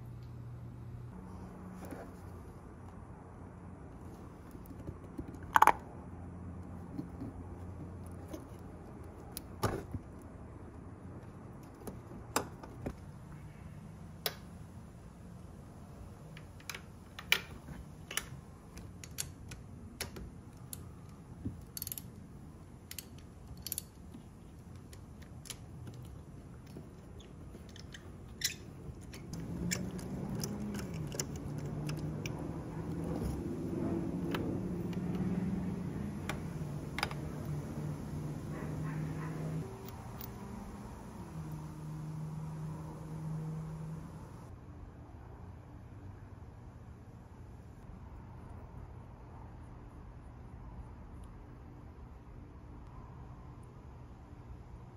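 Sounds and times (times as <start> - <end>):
ratchet clicking: 21.7 - 22.1, 22.8 - 24.1.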